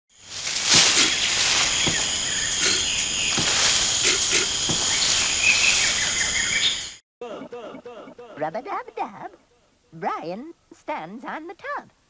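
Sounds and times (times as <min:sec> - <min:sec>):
high-pitched insect chorus: 0:00.2 - 0:07.0
dull thumps: 0:00.6 - 0:05.4.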